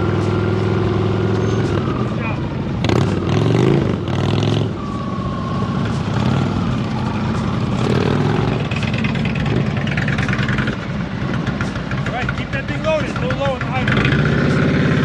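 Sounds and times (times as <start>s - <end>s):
motorcycle engine idling: 6.8s - 14.2s.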